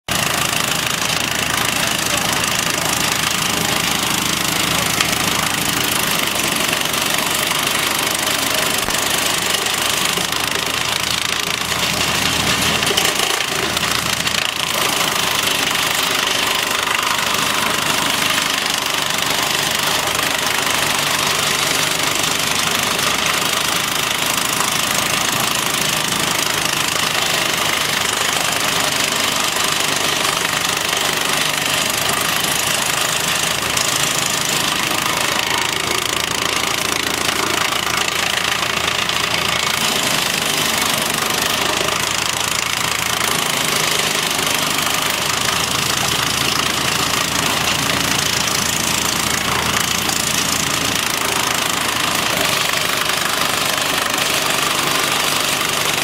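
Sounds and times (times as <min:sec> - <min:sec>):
branch chipper chipping wood: 0:00.0 - 0:56.0
tractor engine running under load: 0:00.1 - 0:56.0.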